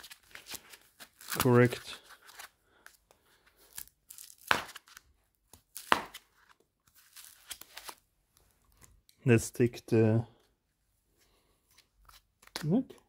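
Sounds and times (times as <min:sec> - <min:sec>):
foam packaging ripping: 0:00.0 - 0:02.4, 0:03.6 - 0:05.0, 0:05.7 - 0:08.0.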